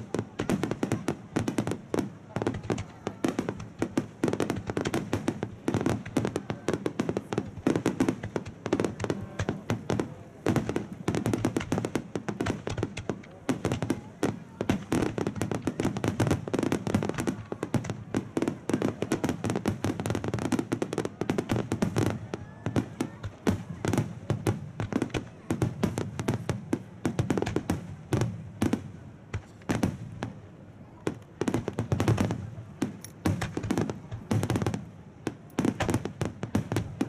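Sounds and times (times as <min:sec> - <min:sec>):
fireworks launching and bursting: 0:00.0 - 0:37.0.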